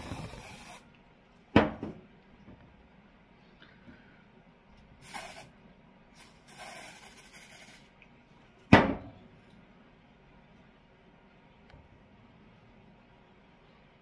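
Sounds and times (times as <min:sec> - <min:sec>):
aerosol can spraying: 0:00.0 - 0:00.8, 0:05.0 - 0:05.5, 0:06.2 - 0:07.9.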